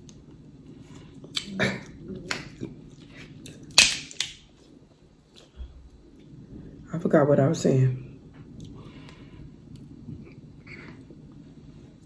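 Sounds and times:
crab shells cracking: 3.5s - 4.5s.

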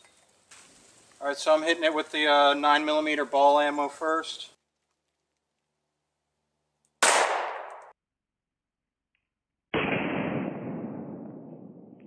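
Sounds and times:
pistol shots hitting steel plate: 7.0s - 7.9s.

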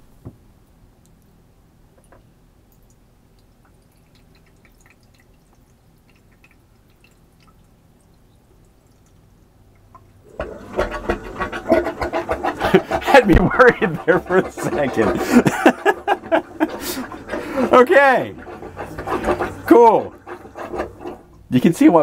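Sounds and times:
water trickling into a drain: 2.0s - 12.1s
drain pump pulsing: 3.3s - 22.0s.

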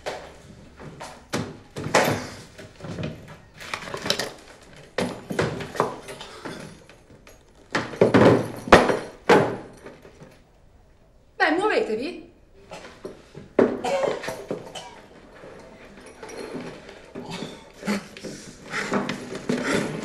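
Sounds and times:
irregular thuds and knocks: 4.9s - 10.3s.

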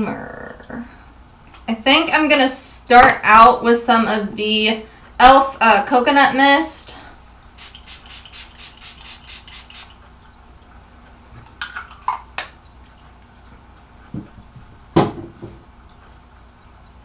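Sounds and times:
spray bottle spritzing: 7.6s - 10.0s
thump: 15.0s - 15.6s.

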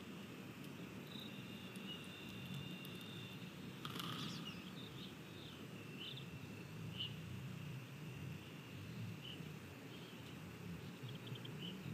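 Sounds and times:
bird chirps: 1.0s - 7.2s
bird calls with falling notes: 1.1s - 6.3s.

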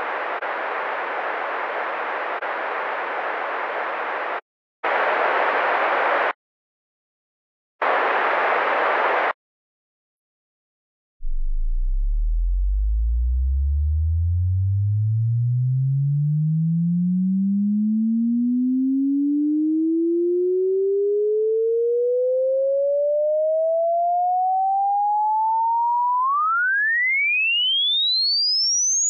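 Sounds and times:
sine tone sweeping upward: 11.2s - 29.0s.

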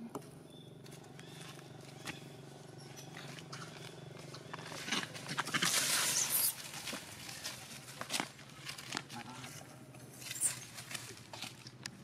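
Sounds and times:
dry leaves crackling and rustling: 4.4s - 9.5s, 10.2s - 11.7s.

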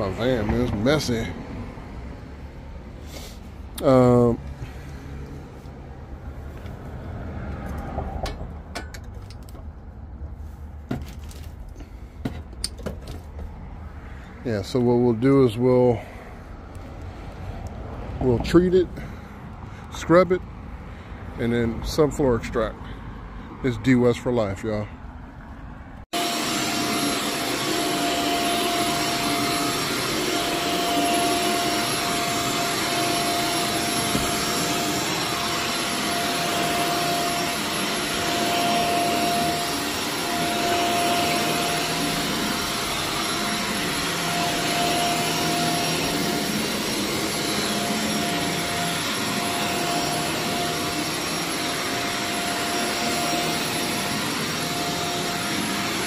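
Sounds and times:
carpet cleaning machine suction: 0.0s - 1.4s, 26.1s - 56.0s.

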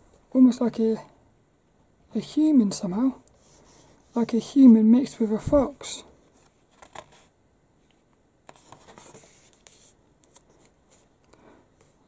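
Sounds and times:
magazine page rustling: 6.3s - 7.3s, 8.5s - 11.1s.

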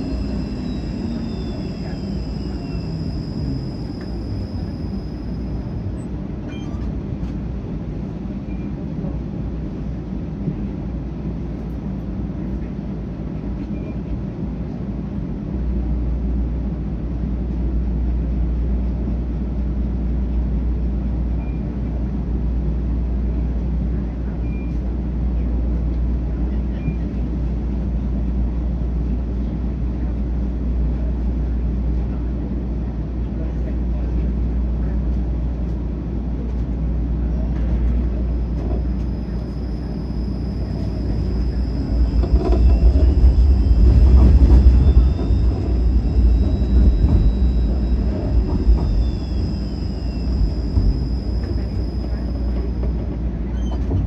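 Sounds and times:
faint short squeaks: 0.0s - 6.9s, 38.0s - 54.0s
streetcar wheels and motors rumbling: 0.0s - 54.0s.

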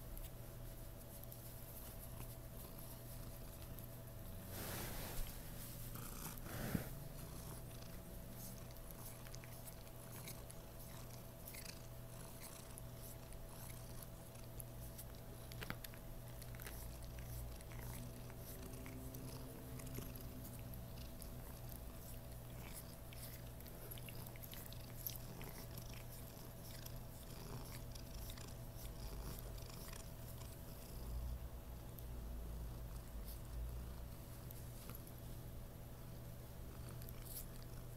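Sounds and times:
cat purring: 1.5s - 31.6s, 36.0s - 37.9s
hand rustling on fur: 4.5s - 7.0s.

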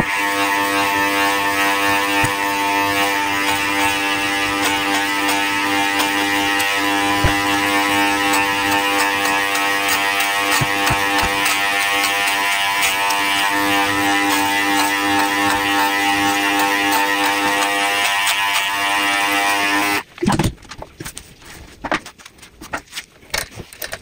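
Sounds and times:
electric clippers buzzing: 0.0s - 20.1s.

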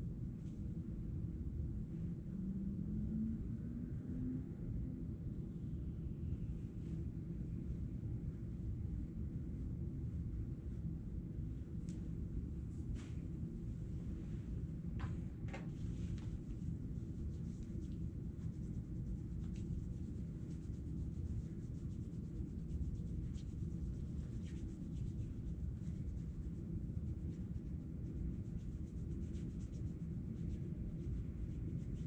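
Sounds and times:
low room hum: 0.0s - 32.0s
hands rubbing together: 15.8s - 32.0s.

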